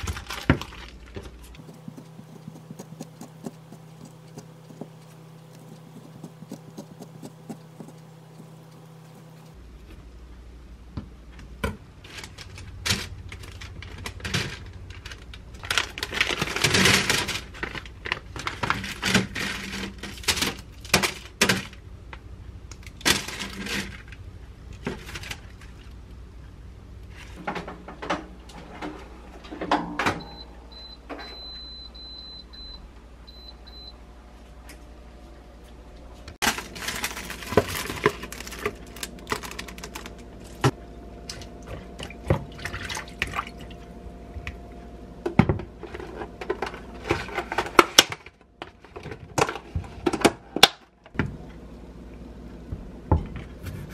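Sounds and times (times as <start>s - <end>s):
parchment paper rustling: 0.0s - 9.6s, 12.0s - 21.4s, 36.4s - 40.7s.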